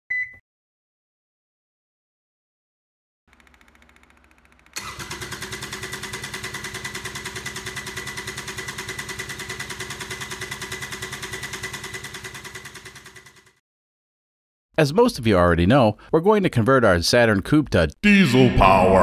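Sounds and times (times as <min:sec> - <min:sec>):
diesel engine running: 0:04.8 - 0:13.6.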